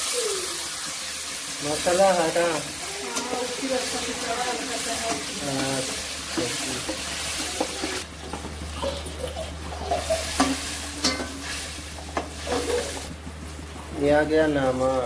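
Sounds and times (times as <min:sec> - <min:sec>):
masala sizzling in a pan: 0:00.0 - 0:15.0
spatula clinking on pan: 0:10.4 - 0:11.4.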